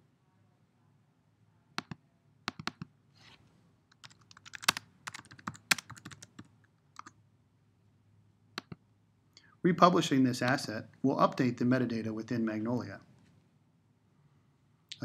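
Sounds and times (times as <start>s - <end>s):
typing on keyboard: 1.8s - 2.9s, 3.9s - 7.1s.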